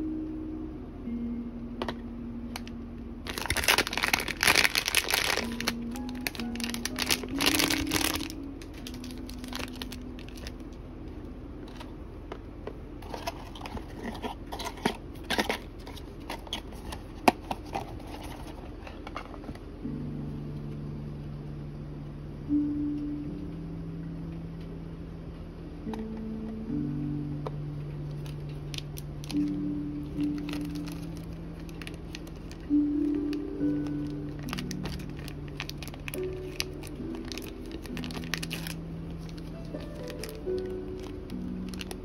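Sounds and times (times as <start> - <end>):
quiet background music: 0.0 - 42.0
packaging rustling and crinkling: 2.6 - 10.6, 11.6 - 11.9, 13.0 - 19.6, 30.1 - 42.0.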